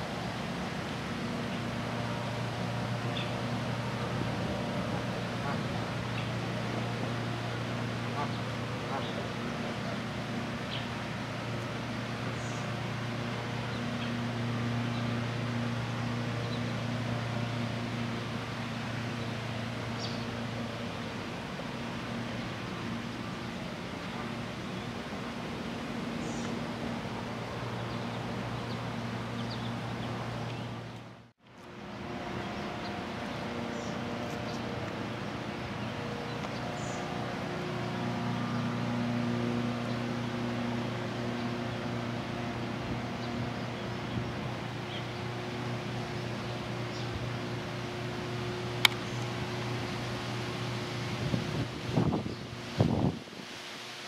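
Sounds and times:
low machine hum: 0.0s - 53.2s
small birds chirping: 3.0s - 3.6s, 8.2s - 11.0s, 12.3s - 12.8s, 18.4s - 20.4s, 26.1s - 26.6s, 27.5s - 31.0s, 39.6s - 51.4s.

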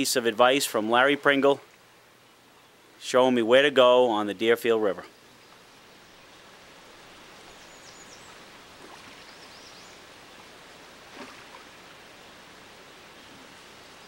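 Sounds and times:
bird chirps: 5.2s - 8.4s, 9.0s - 10.0s
river water rushing: 5.7s - 14.0s
sharp knock or splash: 11.1s - 11.7s.

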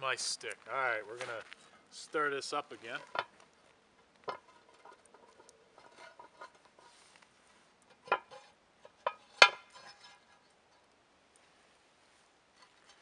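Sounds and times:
pot lid scraping and rattling: 4.2s - 7.0s, 7.9s - 10.6s.

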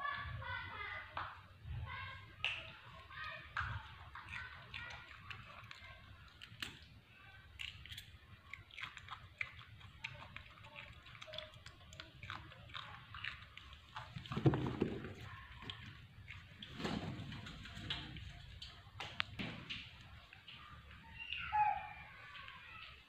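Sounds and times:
monkey crunching cucumber: 2.6s - 20.8s.

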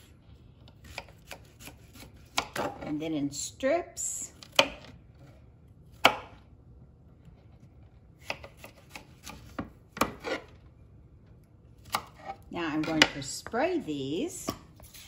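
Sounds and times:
knife slicing vegetable: 0.7s - 2.9s, 8.2s - 10.5s, 11.8s - 13.1s, 14.4s - 15.0s.

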